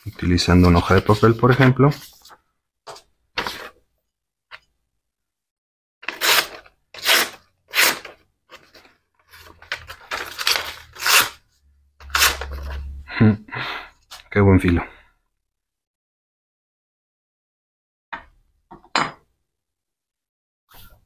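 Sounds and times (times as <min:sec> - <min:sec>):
paper rustling: 0:00.0 - 0:03.8, 0:06.0 - 0:11.3
blade slicing paper: 0:06.0 - 0:08.2, 0:10.1 - 0:11.4.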